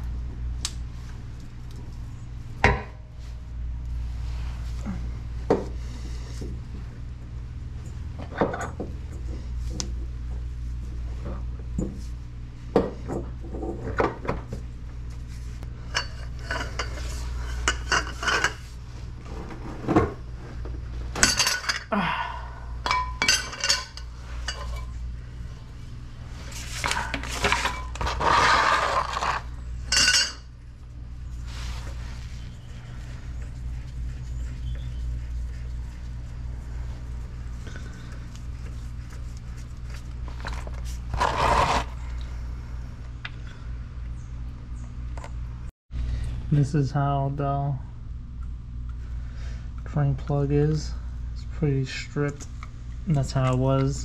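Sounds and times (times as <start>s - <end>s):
low hum: 0.0s - 54.0s
tools clinking on metal: 22.9s - 24.8s.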